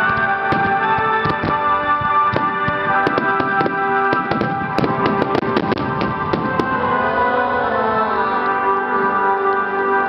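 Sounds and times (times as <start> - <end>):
fireworks bangs and crackles: 0.0 - 7.2
music with long held chords: 0.0 - 10.0.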